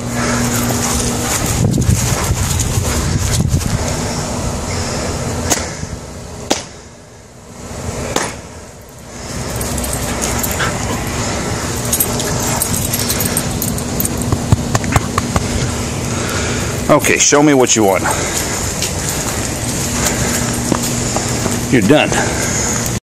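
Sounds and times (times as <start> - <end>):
steady rustling: 8.9 - 16.9, 17.6 - 22.9.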